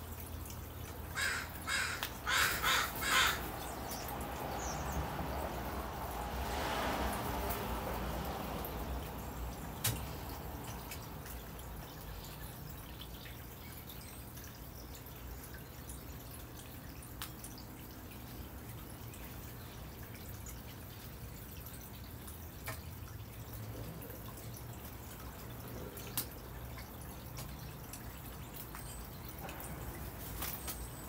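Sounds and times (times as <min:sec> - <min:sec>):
crow wingbeats: 0:01.2 - 0:03.5.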